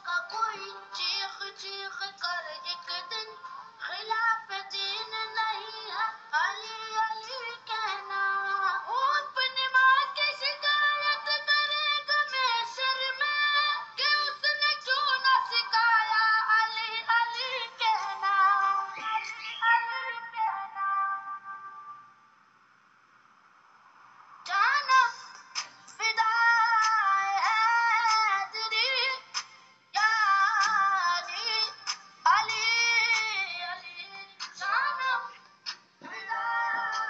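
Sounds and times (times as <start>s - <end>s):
song with processed high vocals: 0.0s - 22.3s, 24.3s - 37.0s.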